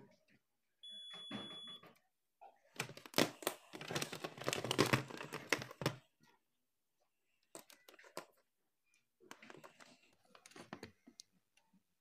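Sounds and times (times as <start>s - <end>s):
plastic housing and wires clattering: 2.8s - 6.1s, 9.3s - 11.3s.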